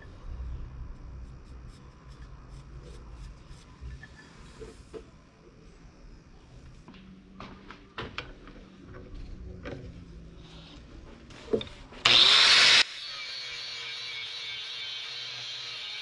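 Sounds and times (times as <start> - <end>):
angle grinder cutting brass: 12.0 - 16.0.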